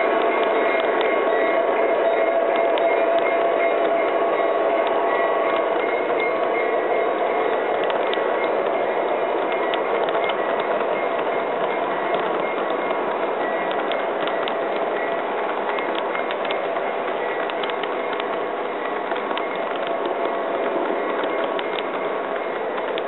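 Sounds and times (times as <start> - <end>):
model train wheels rolling: 0.0 - 23.0
clicks over rail joints: 9.4 - 23.0.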